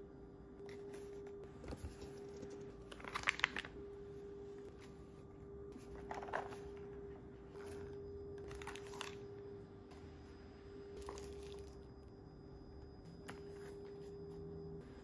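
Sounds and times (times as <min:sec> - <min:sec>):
faint steady hum: 0:00.0 - 0:15.0
plastic and cardboard rustling: 0:05.8 - 0:09.2.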